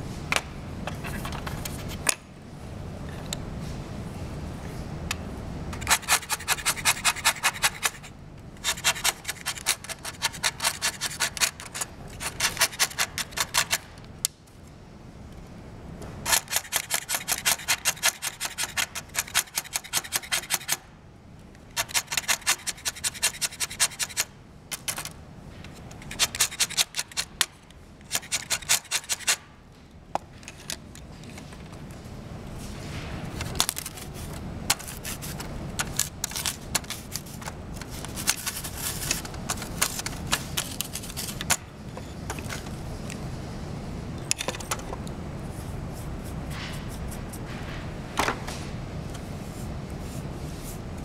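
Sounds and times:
chalk pastel rasping on blade: 5.8 - 13.6, 21.8 - 24.3, 34.0 - 35.4.

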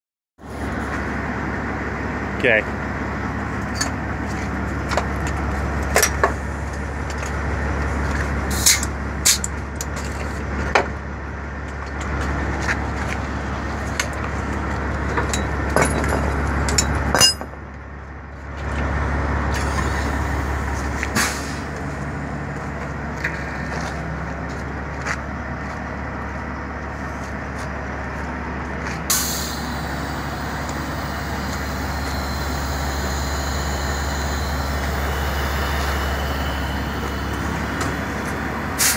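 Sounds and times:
diesel truck idling: 0.4 - 38.9
couplers and chains clanking: 15.1 - 17.6.

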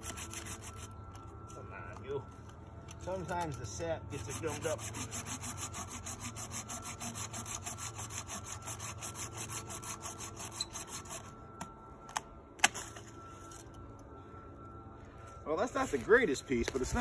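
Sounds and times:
folding saw cutting wood: 4.2 - 11.4.

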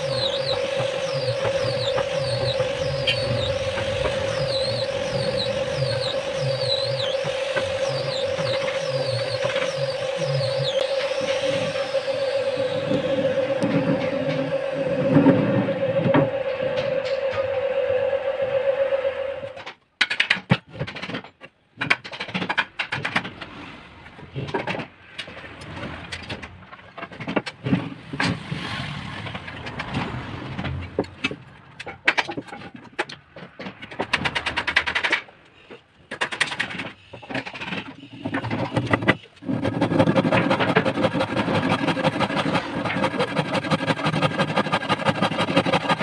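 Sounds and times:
hand saw cutting wood: 38.7 - 46.0.

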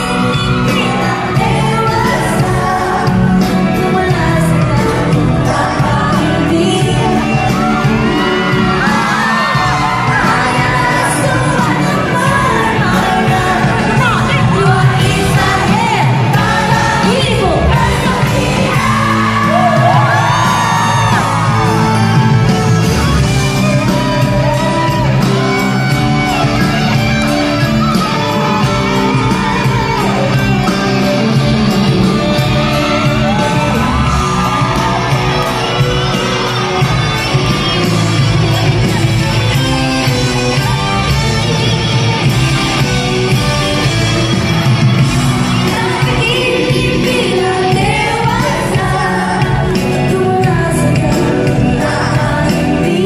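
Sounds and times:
audience shouting and cheering: 0.0 - 53.0
live band music with singing: 0.0 - 53.0.

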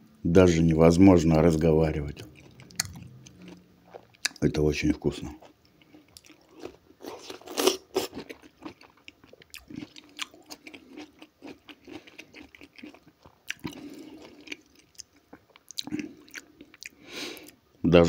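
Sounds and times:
chewing crunchy pickle: 2.1 - 17.6
wet mouth sounds: 2.2 - 3.6.

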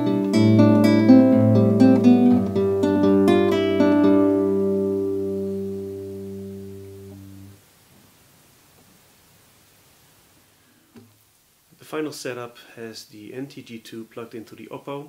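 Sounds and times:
classical guitar fingerstyle: 0.0 - 7.6
faint hiss: 0.0 - 15.0.

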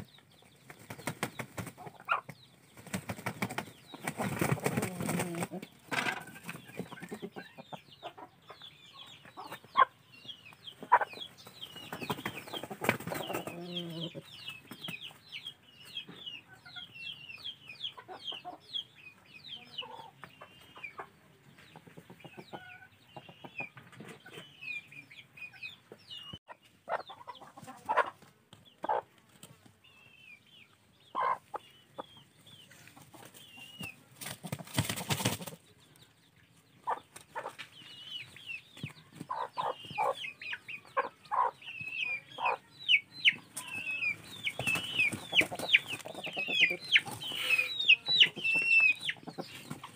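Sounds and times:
hen clucking: 0.0 - 2.5, 3.2 - 15.2, 15.9 - 29.2, 30.5 - 35.9, 36.7 - 49.9
chickens scuffling: 0.0 - 8.3, 9.2 - 15.2, 26.6 - 30.1, 31.1 - 40.3, 43.3 - 49.9
chicks peeping: 0.0 - 49.9
wings flapping loudly: 0.6 - 1.8, 2.8 - 6.6, 11.8 - 13.6, 34.2 - 35.6, 44.4 - 46.2.

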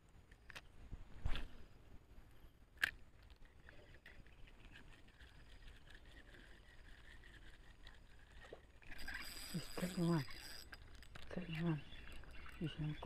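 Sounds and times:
faint high-pitched chirring: 3.3 - 13.0.

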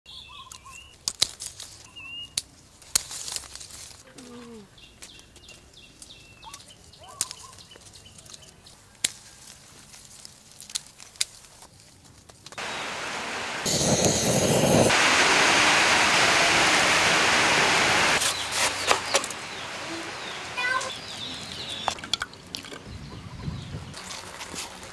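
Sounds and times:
small birds chirping: 0.1 - 1.0, 1.7 - 2.5, 4.0 - 9.5, 12.6 - 14.9, 18.0 - 24.1
loud steady rushing noise: 12.6 - 21.9.

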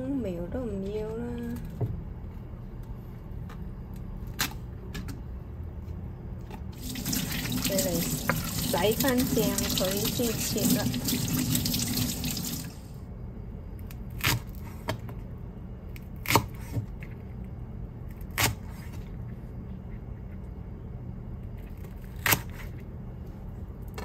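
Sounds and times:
tap water running into sink: 6.8 - 12.8.

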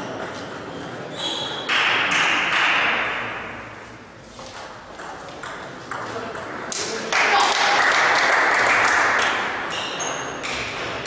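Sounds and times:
table tennis ball hits: 0.0 - 3.6, 4.4 - 6.9, 10.4 - 11.0.

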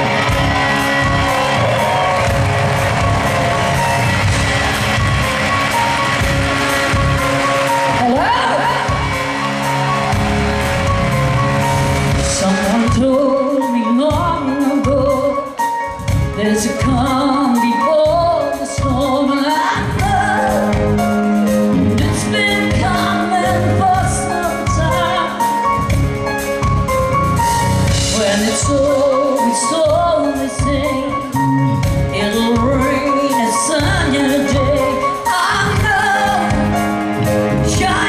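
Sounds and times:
rock band playing: 0.0 - 38.0
woman singing: 7.9 - 9.1, 12.2 - 21.1, 21.7 - 25.7, 28.0 - 38.0.

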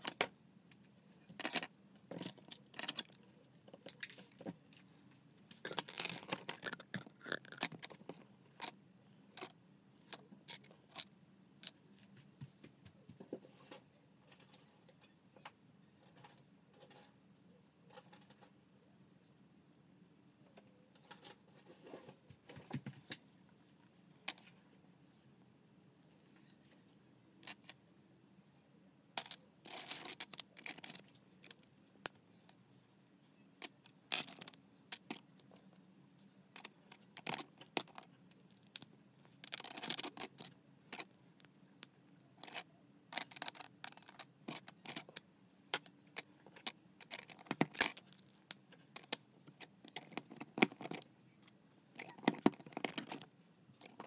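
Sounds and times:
plastic bricks clicking and rattling: 1.4 - 3.2, 5.6 - 8.8, 29.2 - 32.2, 33.6 - 35.5, 36.6 - 41.2, 41.8 - 49.2, 49.9 - 51.0, 52.0 - 53.2, 53.8 - 54.0.

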